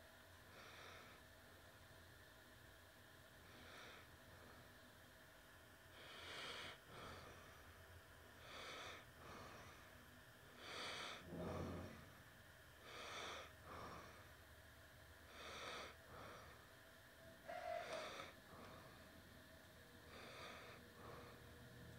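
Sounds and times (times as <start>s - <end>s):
breathing through the nose: 5.9s - 7.8s, 8.4s - 12.2s, 12.8s - 14.4s, 15.2s - 16.8s, 17.5s - 19.2s, 20.0s - 21.9s.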